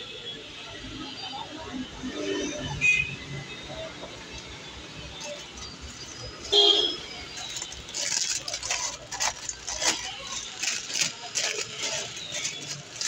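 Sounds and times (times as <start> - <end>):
plastic bag crinkling: 5.2 - 13.0.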